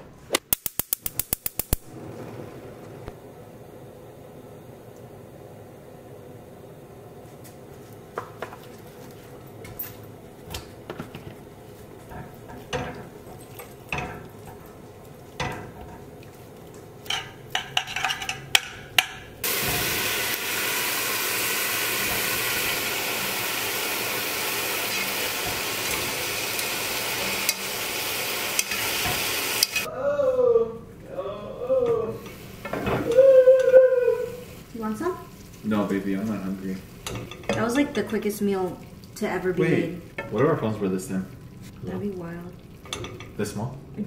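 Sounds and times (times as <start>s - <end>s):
utensil clicking against a pot: 0.4s - 1.9s, 28.5s - 28.8s
broccoli sizzling in hot oil: 19.4s - 29.9s, 32.2s - 44.0s.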